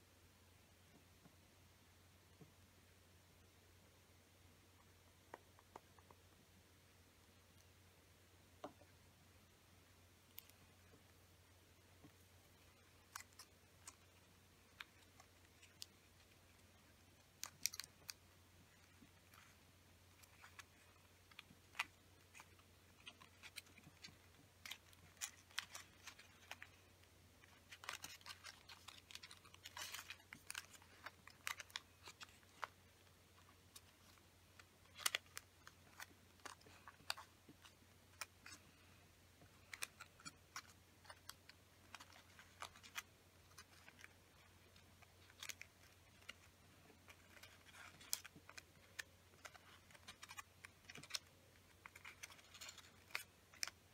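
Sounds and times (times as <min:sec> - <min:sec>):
low steady hum: 0:00.0 - 0:53.9
paper crinkling while folded: 0:12.0 - 0:53.9.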